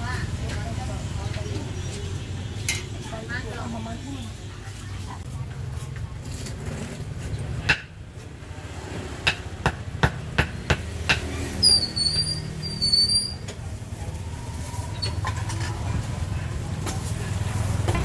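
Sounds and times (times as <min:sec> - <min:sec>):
short high-pitched squeaks: 0:11.6 - 0:13.5.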